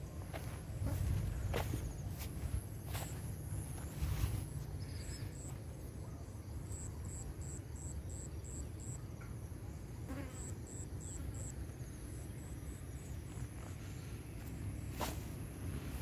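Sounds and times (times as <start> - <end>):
insect chirping: 0.0 - 16.0.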